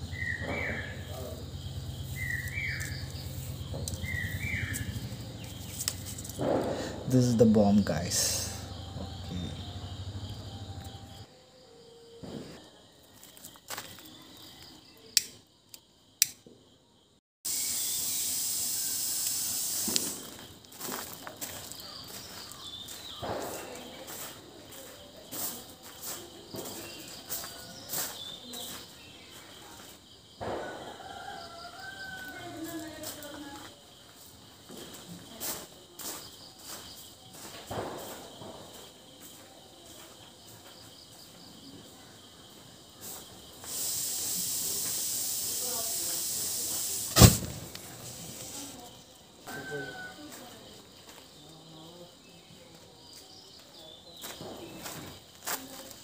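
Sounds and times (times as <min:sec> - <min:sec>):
crickets chirping: 0:00.0 - 0:56.0
powder hissing: 0:01.0 - 0:09.8, 0:17.4 - 0:21.1, 0:43.5 - 0:49.0
lighter clicks: 0:15.2 - 0:16.4
firecracker fizzing loudly: 0:17.5 - 0:21.0, 0:43.6 - 0:48.8.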